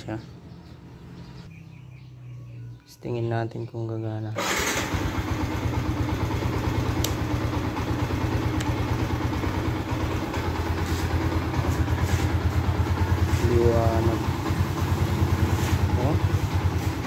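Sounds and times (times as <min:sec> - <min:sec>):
motorcycle engine idling: 0:04.4 - 0:17.0.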